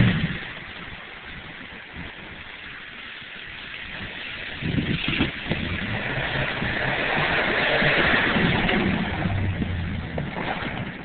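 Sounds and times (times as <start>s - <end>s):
tyres churning mud: 4.1s - 11.0s
truck engine running: 4.6s - 11.0s.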